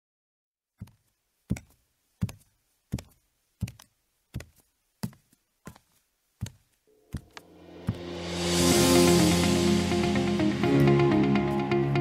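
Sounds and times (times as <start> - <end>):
music track: 6.9 - 12.0.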